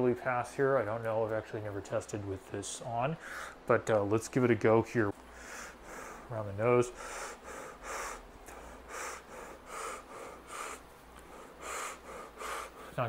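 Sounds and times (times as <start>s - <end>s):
man breathing hard through mask: 5.3s - 6.3s, 6.9s - 13.0s.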